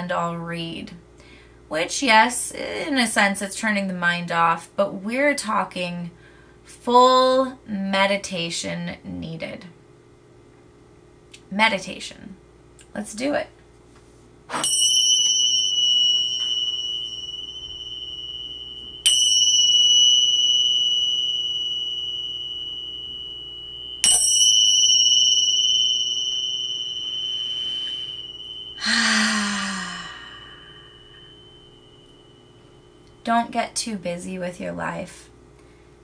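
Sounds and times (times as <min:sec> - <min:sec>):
meditation chime ringing: 0:14.5 - 0:34.0
breathy exhale: 0:28.8 - 0:31.2.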